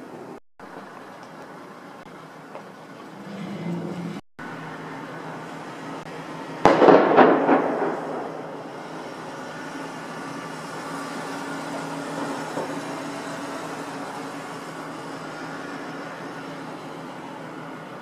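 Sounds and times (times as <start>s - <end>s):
firecrackers banging: 6.0s - 16.0s.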